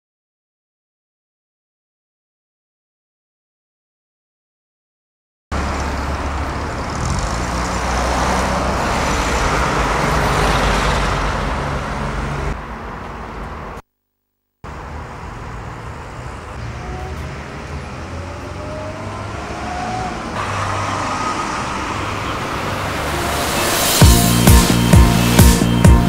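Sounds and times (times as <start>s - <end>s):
road noise: 5.5s - 13.8s, 14.6s - 26.0s
vehicle passing close by: 5.6s - 13.8s, 15.6s - 26.0s.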